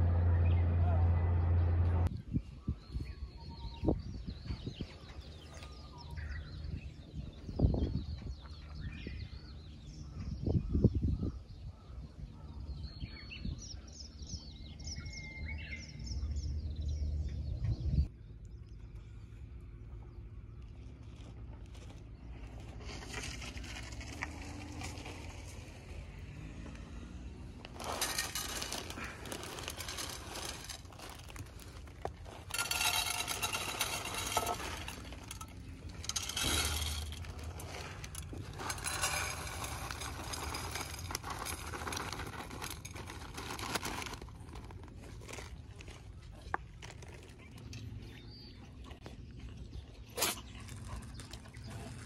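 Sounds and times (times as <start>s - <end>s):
plastic bag crinkling: 27.6s - 47.5s
kibble rattling into metal pans: 27.7s - 44.2s.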